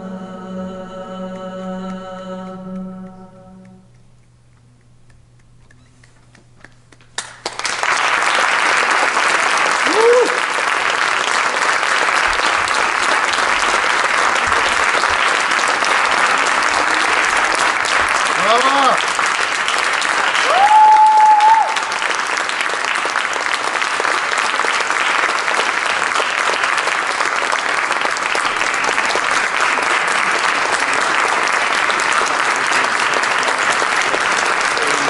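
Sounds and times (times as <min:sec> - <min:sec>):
audience applauding: 0:06.0 - 0:35.0
high held cheer: 0:07.8 - 0:22.7.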